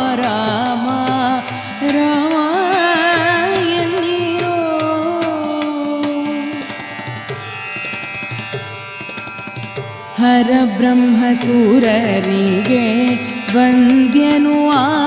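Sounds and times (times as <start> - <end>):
woman singing: 0.0 - 6.9, 10.2 - 15.0.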